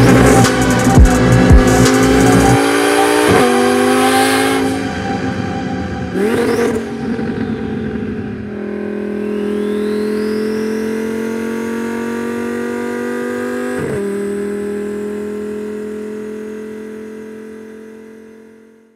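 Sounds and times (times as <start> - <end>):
high whine: 0.0 - 12.3
car engine at high revs: 0.0 - 18.9.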